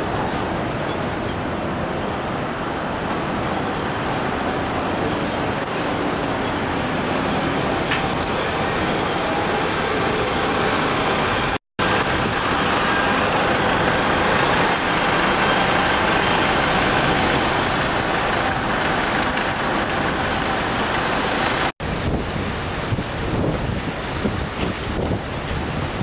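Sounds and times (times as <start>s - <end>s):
road traffic noise: 0.0s - 26.0s.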